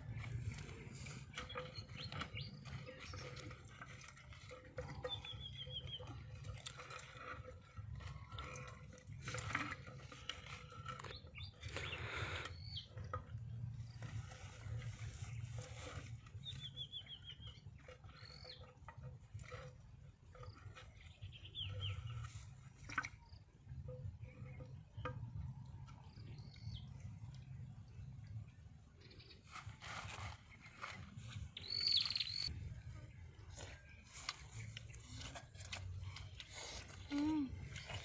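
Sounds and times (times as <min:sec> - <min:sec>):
wooden sticks scraping in a clay pot: 0:00.0 - 0:28.4, 0:29.2 - 0:38.0
bird chirping: 0:01.3 - 0:03.5, 0:04.9 - 0:06.1, 0:10.9 - 0:13.0, 0:16.4 - 0:18.6, 0:20.5 - 0:22.4, 0:30.6 - 0:35.3.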